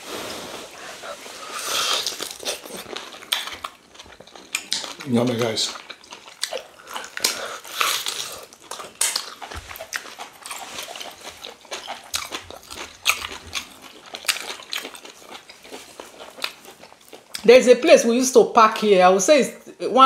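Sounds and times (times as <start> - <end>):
chewing and lip-smacking: 1.5 - 17.5.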